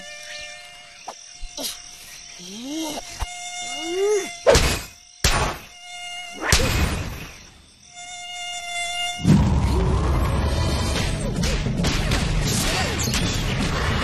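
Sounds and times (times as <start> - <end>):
mosquito whine: 0.0 - 11.4.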